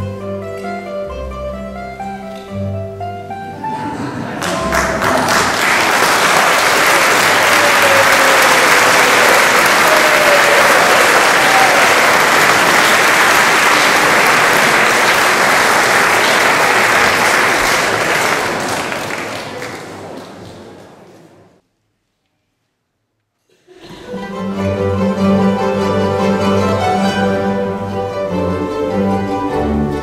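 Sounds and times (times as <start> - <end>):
audience applauding: 4.3 - 21.4.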